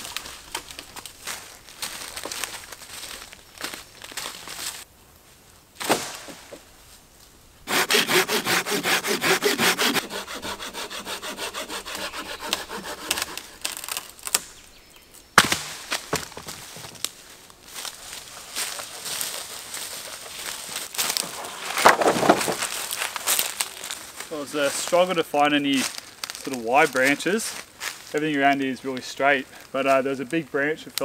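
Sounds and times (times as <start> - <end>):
wood cracking: 0.0 - 4.8, 7.7 - 14.7, 20.3 - 24.0
hand saw cutting wood: 7.7 - 14.4.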